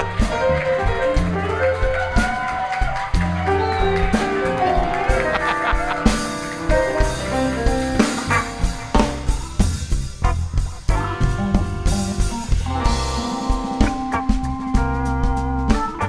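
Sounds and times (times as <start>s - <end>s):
drum kit: 0.0s - 16.0s
electric guitar: 0.0s - 16.0s
organ holding chords: 3.2s - 16.0s.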